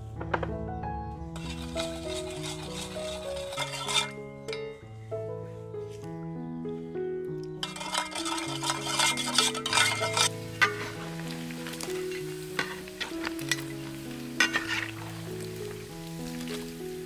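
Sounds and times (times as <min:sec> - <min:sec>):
soft background music: 0:00.0 - 0:17.0
spoon stirring sauce in a bowl: 0:01.4 - 0:04.2, 0:07.6 - 0:11.0
ribs sizzling in hot oil: 0:01.4 - 0:04.3, 0:07.6 - 0:17.0
metal utensils clinking on wok: 0:01.4 - 0:04.8, 0:07.6 - 0:15.5.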